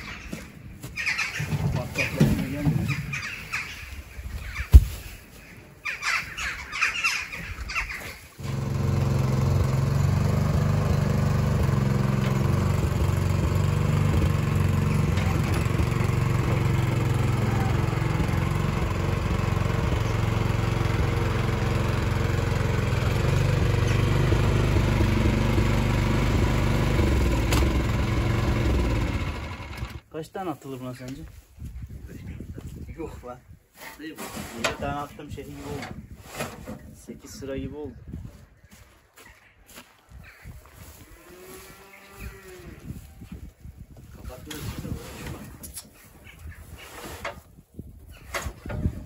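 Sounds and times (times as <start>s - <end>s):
short bird calls: 2.9s - 8.3s
tractor engine running: 8.4s - 30.0s.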